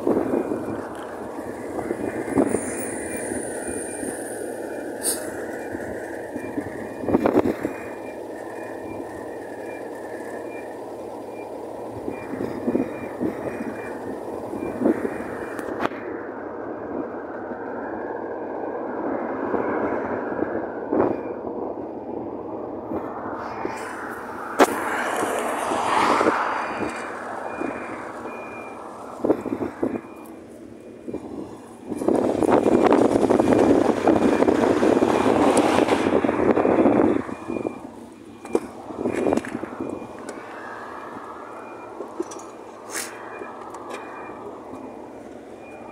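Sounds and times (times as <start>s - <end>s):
highway traffic passing: 0.0s - 45.9s
faint short beeps: 41.4s - 45.9s.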